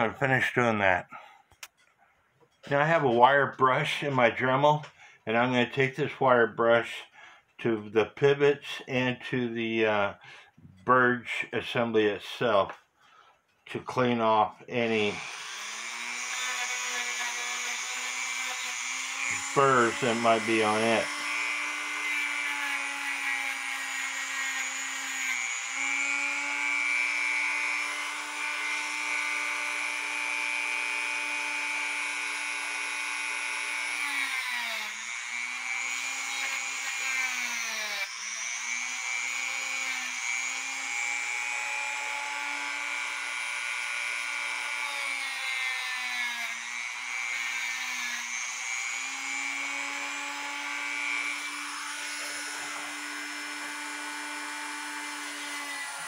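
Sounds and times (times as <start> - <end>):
rotary tool wire brush running: 49.8 - 56.0.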